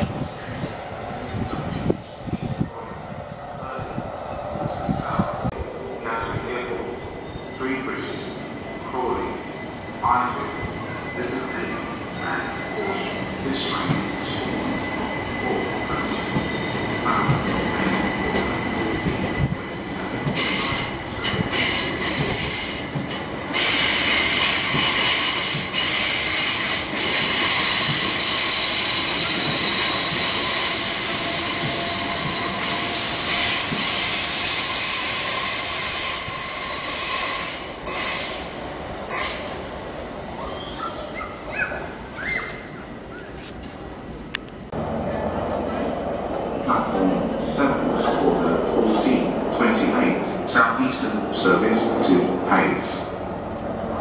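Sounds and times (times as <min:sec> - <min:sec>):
train wheels squealing on rails: 0:07.1 - 0:39.6, 0:40.3 - 0:43.5.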